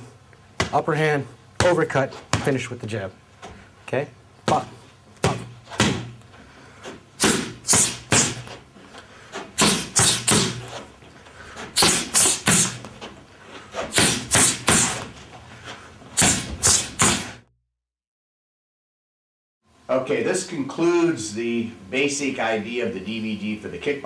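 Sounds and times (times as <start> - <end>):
punches smacking boxing gloves: 1.6 - 2.6, 4.5 - 6.2, 7.2 - 8.6, 9.5 - 10.9, 11.8 - 13.1, 13.8 - 15.2, 16.2 - 17.4.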